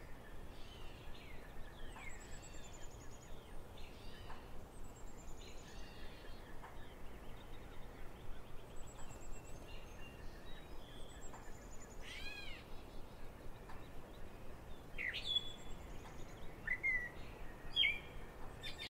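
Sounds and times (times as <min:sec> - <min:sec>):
steady background hiss: 0:00.0 - 0:18.9
birds chirping and whistling: 0:14.8 - 0:18.9.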